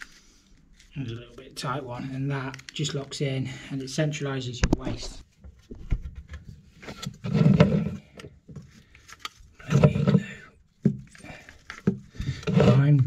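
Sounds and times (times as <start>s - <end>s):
plastic fittings scraping: 4.7s - 13.0s.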